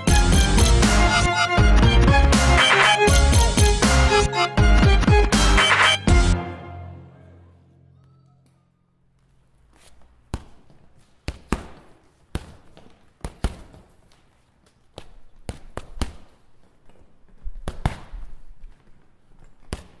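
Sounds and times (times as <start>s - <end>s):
boxing glove punches smacking: 10.3s - 13.9s.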